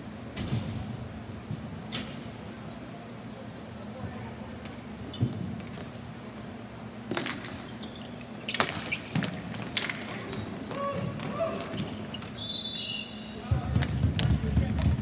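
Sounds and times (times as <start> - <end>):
hockey sticks striking ball: 8.5 - 12.4.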